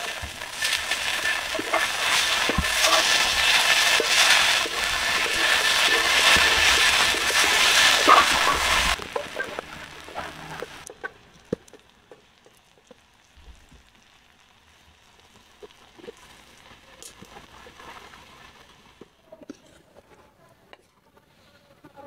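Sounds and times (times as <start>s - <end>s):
vegetables sizzling in a wok: 0.0s - 20.0s.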